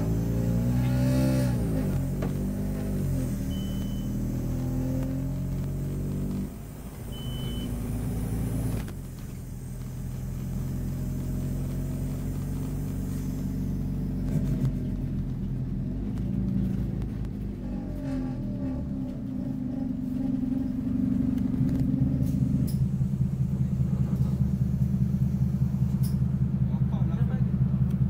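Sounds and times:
bus diesel engine running: 0.0 - 28.0
short high beep: 3.5 - 4.2, 7.1 - 7.8.

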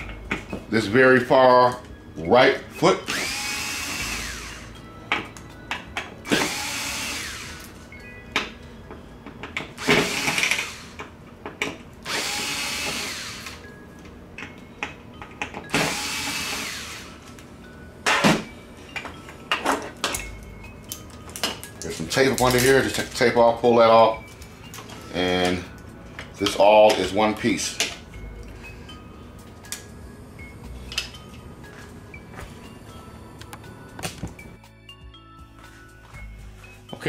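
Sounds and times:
electric screwdriver whirring: 3.1 - 4.7, 6.3 - 7.7, 9.8 - 11.0, 12.0 - 13.6, 15.7 - 17.2.

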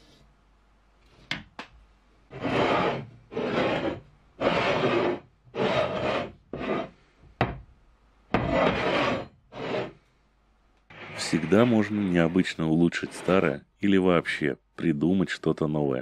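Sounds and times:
steel block scraping on concrete: 2.3 - 7.0, 8.4 - 10.0, 10.9 - 13.6.

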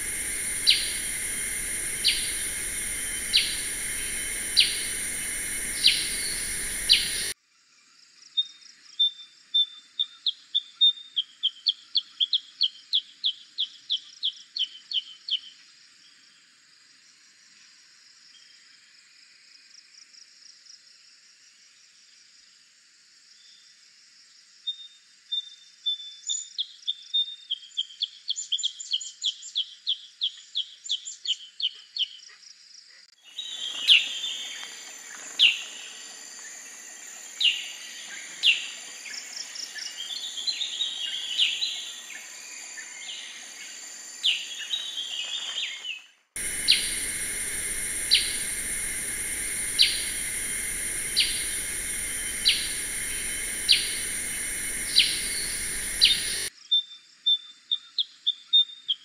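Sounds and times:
bird calls: 0.0 - 7.3, 37.2 - 56.5
loud steady hiss: 0.0 - 7.4, 33.3 - 45.7, 46.4 - 56.5.

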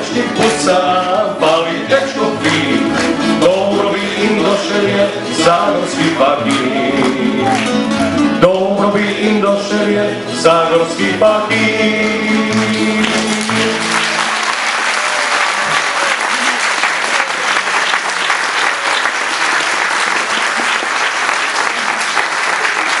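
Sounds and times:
audience applauding: 12.5 - 23.0.

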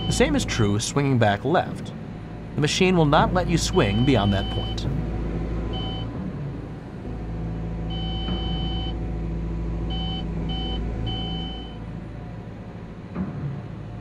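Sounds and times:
electronic beeps: 0.0 - 0.3, 3.7 - 4.8, 9.9 - 11.8
excavator diesel engine running: 0.0 - 14.0.

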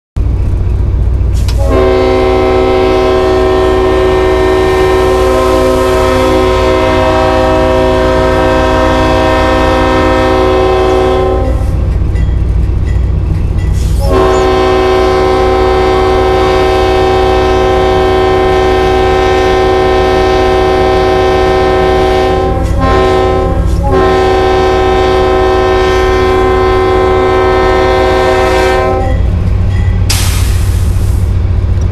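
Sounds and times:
air horn chord blasts: 1.6 - 11.7, 14.0 - 29.2.

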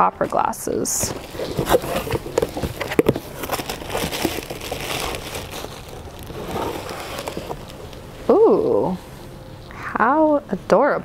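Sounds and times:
cardboard box being opened: 1.0 - 8.0
plastic wrapping crinkling: 1.0 - 8.2.

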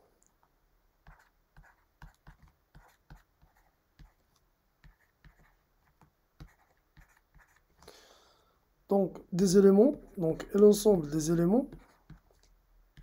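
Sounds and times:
stylus tapping on tablet: 1.1 - 4.2.

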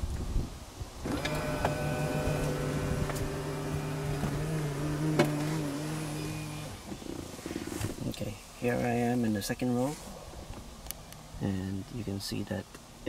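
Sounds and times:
electric motor running: 1.0 - 6.8.

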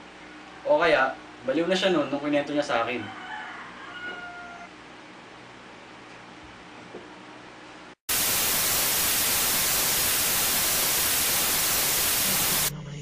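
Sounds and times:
loud static hiss: 8.0 - 12.7.

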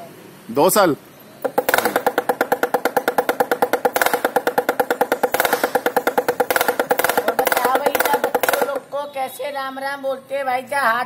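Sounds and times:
hand drum rattling: 1.4 - 9.0.

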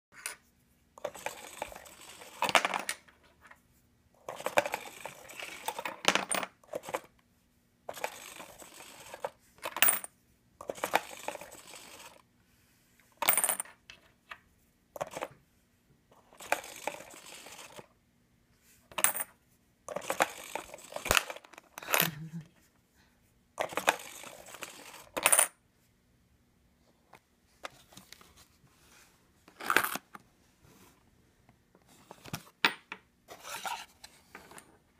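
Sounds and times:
coins clinking dropping in: 7.9 - 10.1, 13.2 - 13.7, 18.9 - 19.3, 23.6 - 25.5.

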